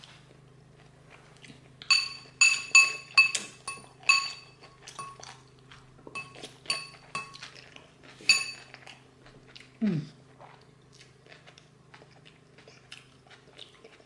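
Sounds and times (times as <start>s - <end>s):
metal fork clinking on bowl: 1.9s - 5.3s, 6.1s - 7.4s, 8.3s - 8.7s.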